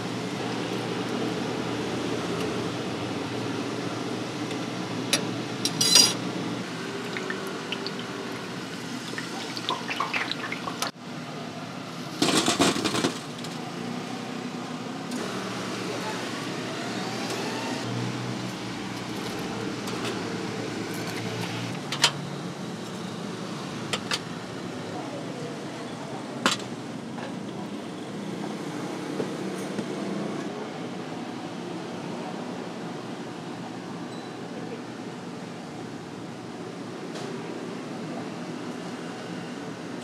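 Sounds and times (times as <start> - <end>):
kitchen hum: 5.6 - 11.0.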